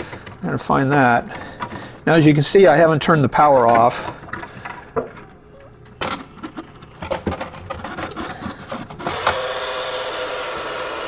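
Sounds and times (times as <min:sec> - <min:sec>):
plastic clicks and knocks: 0:06.0 - 0:09.0.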